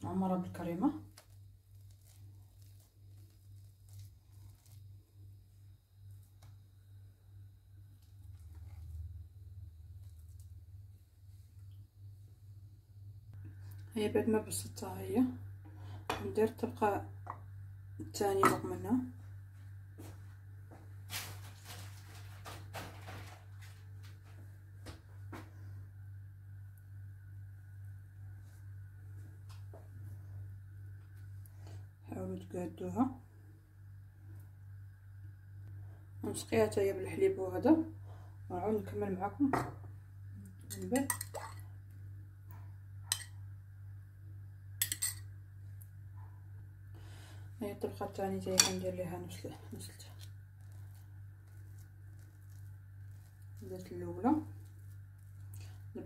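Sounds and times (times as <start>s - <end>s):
steady low hum: 0.0s - 56.0s
metal spoon clinking against dish: 40.7s - 41.6s, 44.8s - 45.2s.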